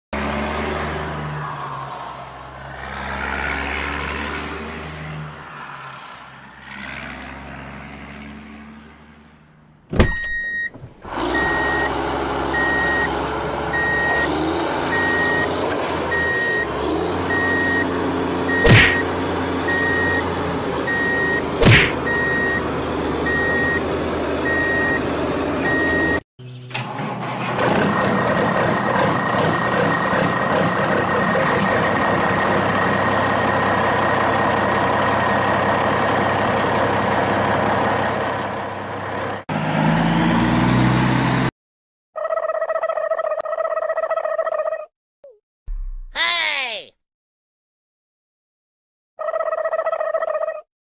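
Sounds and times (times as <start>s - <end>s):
truck engine running: 7.2s - 41.5s
reversing alarm beeping: 10.1s - 13.1s, 13.7s - 14.3s, 14.9s - 15.5s, 16.1s - 16.7s, 17.3s - 17.9s, 18.5s - 19.1s, 19.7s - 22.6s, 23.2s - 23.8s, 24.4s - 25.0s, 25.6s - 26.2s.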